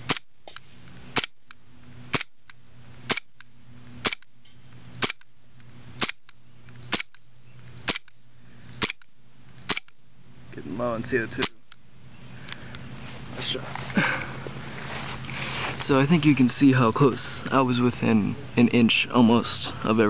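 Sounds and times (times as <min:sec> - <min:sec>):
airsoft pistol shots: 0:00.0 - 0:01.4, 0:02.1 - 0:02.4, 0:03.1 - 0:03.3, 0:04.0 - 0:04.3, 0:05.0 - 0:05.3, 0:06.0 - 0:06.3, 0:06.9 - 0:07.2, 0:07.8 - 0:08.1, 0:09.7 - 0:10.0.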